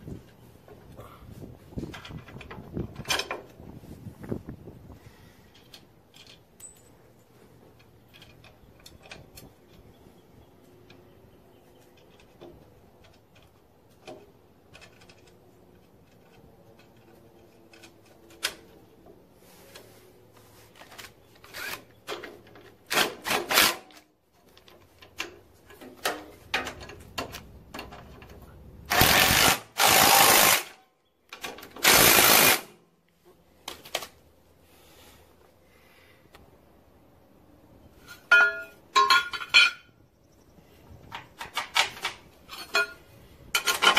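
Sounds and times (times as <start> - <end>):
metal clicks of nuts: 7.8 - 9.9, 11.9 - 18.8
impact wrench bursts: 28.9 - 30.8, 31.8 - 32.8.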